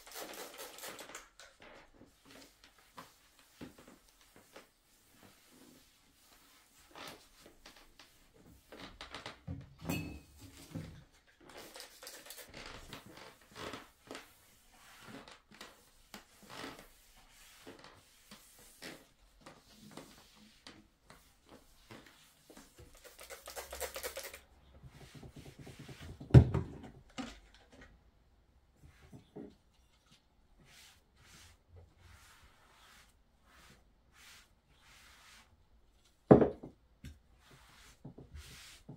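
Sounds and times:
cloth wiping a table: 0:02.1 - 0:08.7, 0:13.3 - 0:23.0, 0:24.9 - 0:26.2, 0:30.6 - 0:35.5, 0:37.4 - 0:38.9.

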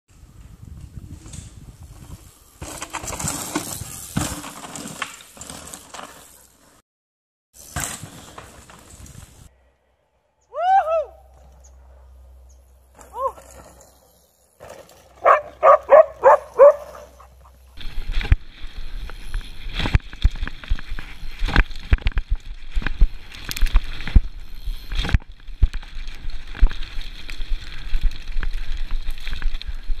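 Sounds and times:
tyre and wind noise: 0:00.1 - 0:06.6, 0:07.6 - 0:09.5, 0:12.9 - 0:30.0
bike rattles and thumps: 0:00.3 - 0:06.8, 0:07.6 - 0:09.5, 0:12.4 - 0:30.0.

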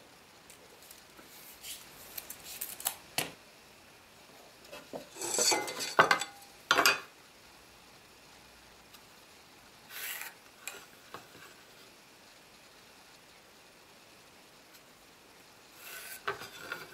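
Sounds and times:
metal clattering and scraping: 0:05.0 - 0:06.4.

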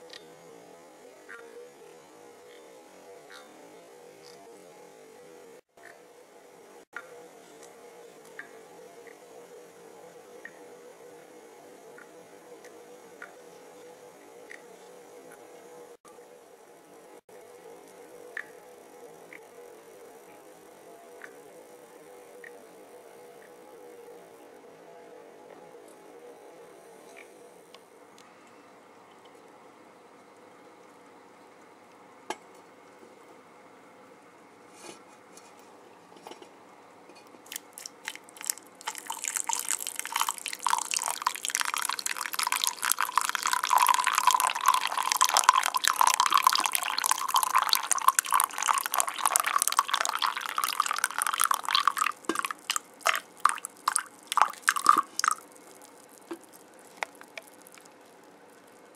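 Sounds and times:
drips and small taps: 0:37.5 - 0:58.2
coffee pouring into a mug: 0:37.5 - 0:58.8.

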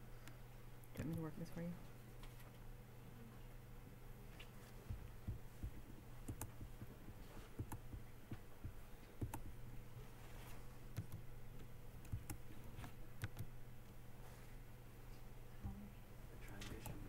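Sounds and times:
low steady hum: 0:00.0 - 0:17.0
computer mouse and key clicks: 0:00.2 - 0:01.4, 0:04.4 - 0:09.6, 0:10.9 - 0:13.5, 0:16.4 - 0:17.0.

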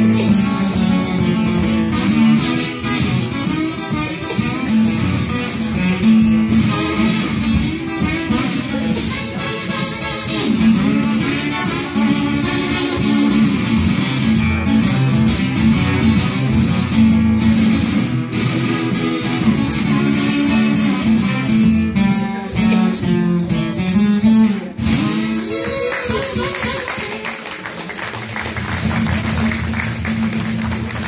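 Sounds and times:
acoustic guitar strumming: 0:00.0 - 0:31.0
harmonica playing: 0:02.4 - 0:13.6, 0:25.1 - 0:27.2.

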